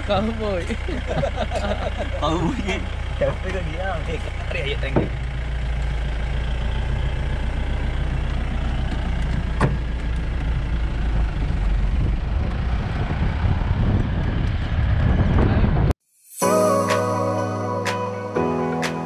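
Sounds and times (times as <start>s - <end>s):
vehicle engine and road rumble: 0.0s - 16.0s.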